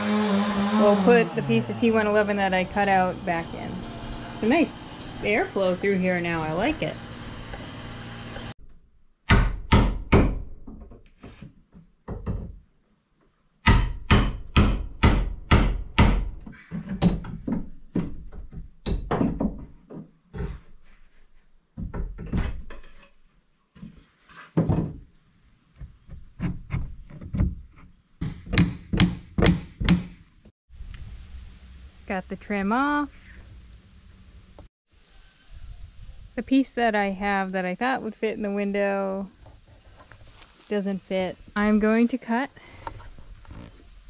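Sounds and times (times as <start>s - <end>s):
hammer knocking on wood: 13.7s - 16.4s, 28.2s - 30.2s.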